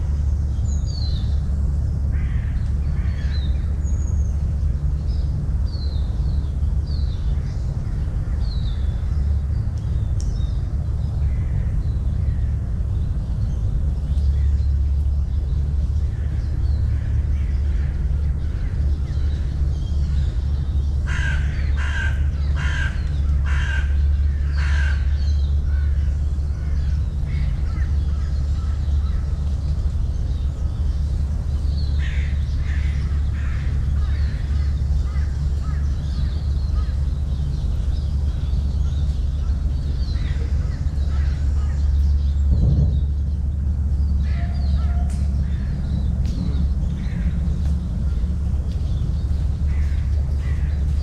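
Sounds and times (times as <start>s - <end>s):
steady low rumble: 0.0s - 51.0s
crow cawing: 21.1s - 26.1s, 32.0s - 37.0s, 49.7s - 50.9s.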